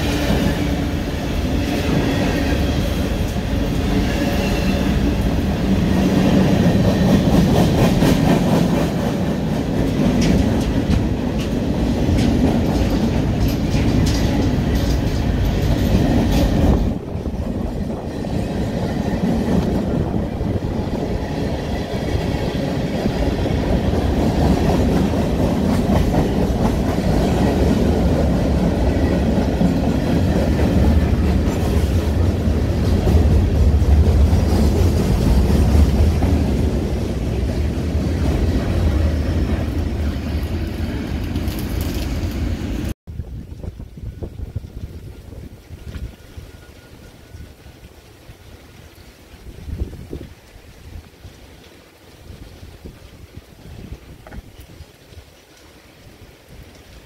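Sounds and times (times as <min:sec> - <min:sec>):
train wheels clacking over rail joints: 0:06.3 - 0:19.9.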